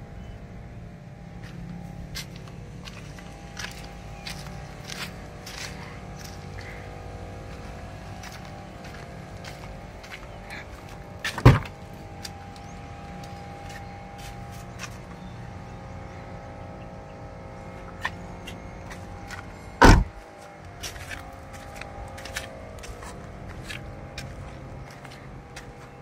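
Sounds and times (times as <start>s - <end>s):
steady low hum: 0.0s - 26.0s
truck door thumps: 11.3s - 11.8s, 19.8s - 20.2s.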